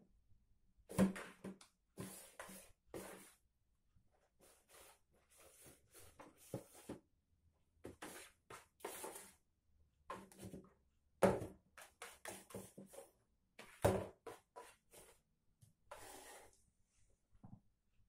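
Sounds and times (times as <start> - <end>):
cardboard box scraping on floor: 15.9 - 16.6.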